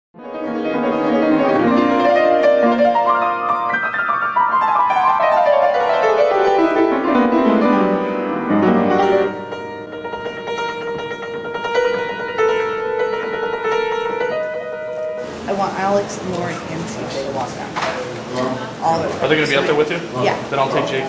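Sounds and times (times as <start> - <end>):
solo piano piece: 0.2 - 16.8.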